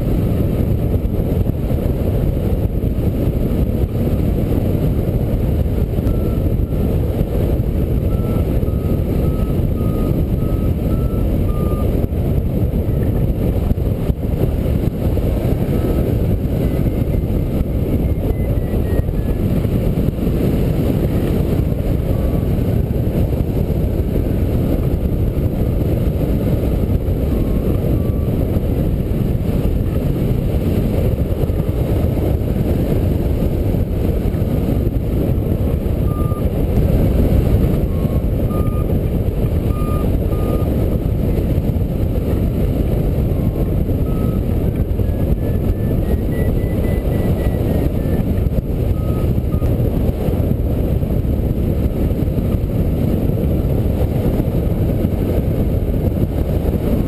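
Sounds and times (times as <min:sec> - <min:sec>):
airflow over microphone: 0:00.0 - 0:57.0
variometer short beeps: 0:06.0 - 0:06.7, 0:08.0 - 0:12.0, 0:15.7 - 0:17.2, 0:17.8 - 0:19.4, 0:27.3 - 0:28.4, 0:36.0 - 0:36.5, 0:37.8 - 0:38.9, 0:39.6 - 0:40.7, 0:43.3 - 0:48.2, 0:48.9 - 0:49.7.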